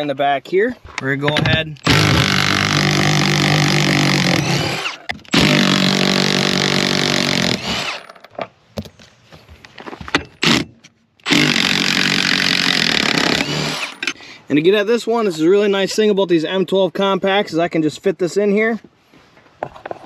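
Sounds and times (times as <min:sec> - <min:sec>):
impact wrench running: 0:01.8 - 0:08.2, 0:10.4 - 0:14.2.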